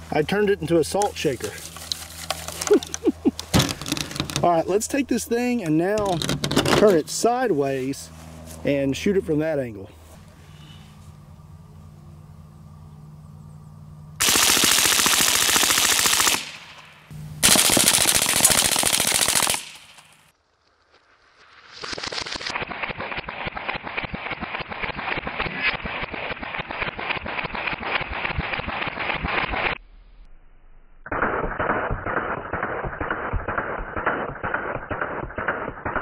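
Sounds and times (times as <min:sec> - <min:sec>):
slowed-down dull gunfire: 0:14.2 - 0:20.3, 0:22.2 - 0:29.8, 0:31.0 - 0:36.0.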